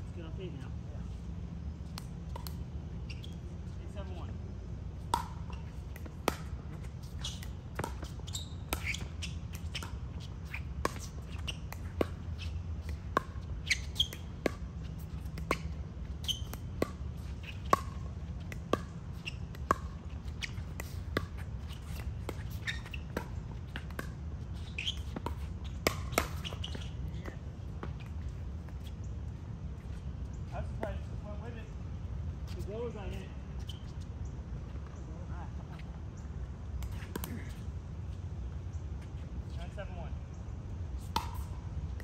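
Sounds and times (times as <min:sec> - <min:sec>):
steady low hum: 0:00.0 - 0:42.0
shoes squeaking on court: 0:00.4 - 0:42.0
paddles hitting plastic ball: 0:05.0 - 0:28.8.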